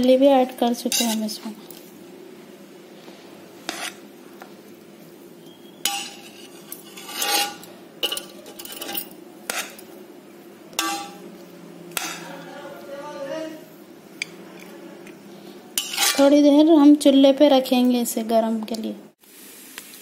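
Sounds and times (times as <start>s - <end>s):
spatula scraping metal pot: 0.8s - 1.4s, 3.7s - 4.0s, 5.6s - 9.8s, 15.8s - 16.4s.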